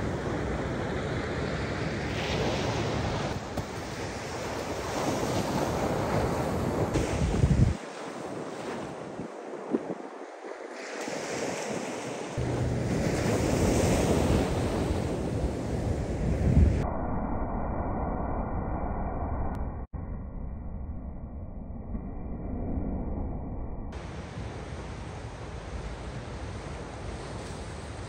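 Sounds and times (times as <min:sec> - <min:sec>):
surf breaking on shore: 0:00.0 - 0:16.8
wind buffeting microphone: 0:00.0 - 0:16.9.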